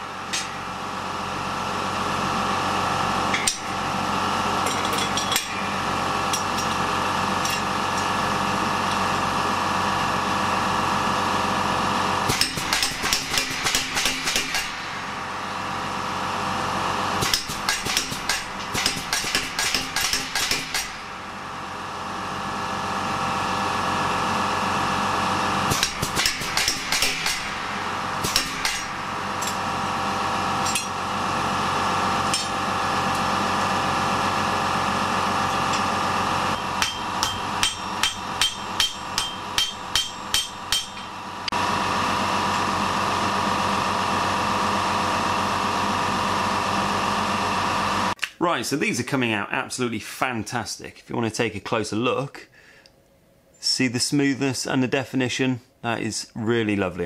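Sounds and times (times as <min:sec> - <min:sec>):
machine drone: 0:00.0 - 0:48.2
power hammer blows on steel: 0:12.2 - 0:21.4, 0:24.6 - 0:34.2, 0:34.9 - 0:41.8.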